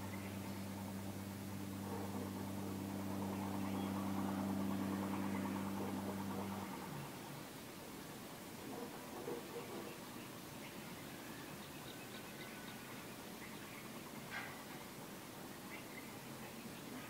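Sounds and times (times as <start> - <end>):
engine idling hum: 0.0 - 9.9.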